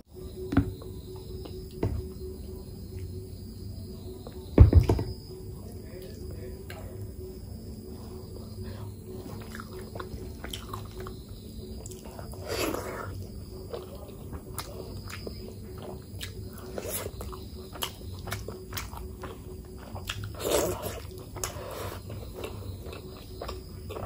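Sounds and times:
person chewing food: 7.8s - 24.0s.

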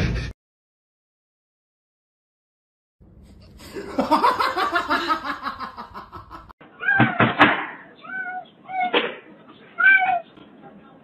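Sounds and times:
cat meowing: 8.0s - 9.0s, 9.8s - 10.3s.

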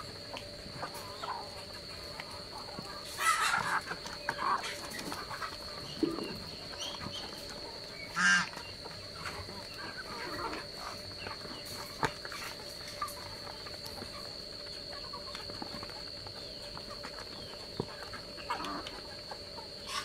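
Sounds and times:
loud bird honk: 8.1s - 8.5s.

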